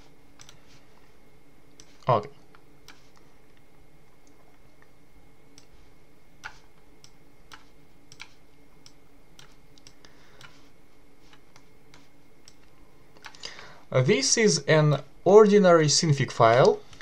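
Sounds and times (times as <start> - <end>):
faint steady hum: 0.0 - 17.0
mouse and keyboard clicks: 0.4 - 0.6, 2.8 - 3.3, 6.4 - 10.7.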